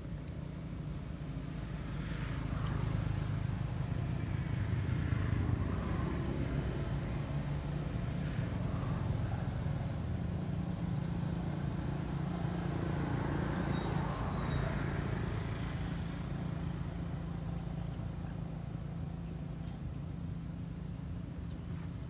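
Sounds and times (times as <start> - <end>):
faint high chirp: 4.5 - 4.8, 13.7 - 14.7.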